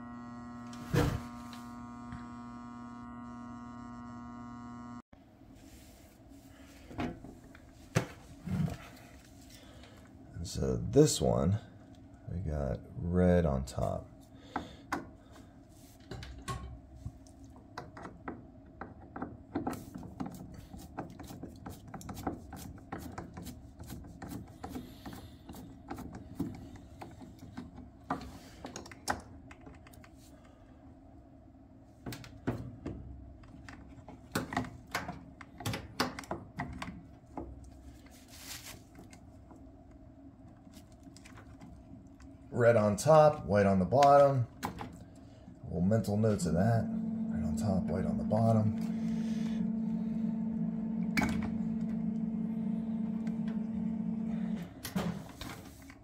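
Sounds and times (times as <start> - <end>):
steady low hum: 0.0 - 16.0, 37.1 - 56.0.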